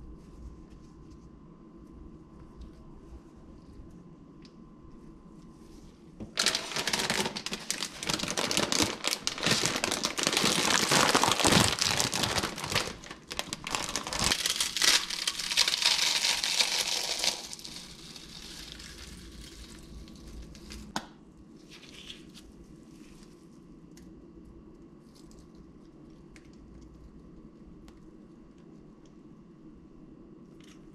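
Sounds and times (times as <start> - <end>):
chip bag crinkling: 6.3 - 20.9
potato chips crackling: 6.4 - 20.9.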